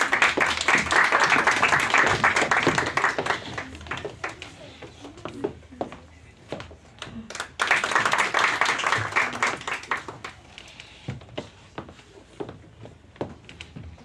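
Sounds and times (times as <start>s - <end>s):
audience applauding: 0.0s - 4.0s, 7.3s - 10.4s.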